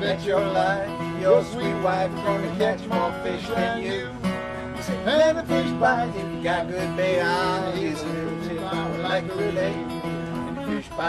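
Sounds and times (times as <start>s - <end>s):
acoustic guitar strumming: 0.0s - 11.0s
harmonica playing bent notes: 7.2s - 11.0s.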